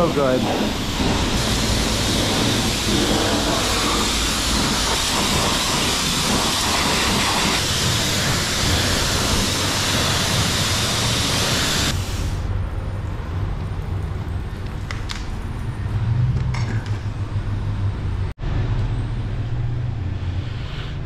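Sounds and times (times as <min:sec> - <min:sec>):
pressure washer spray hissing: 0:00.0 - 0:12.5.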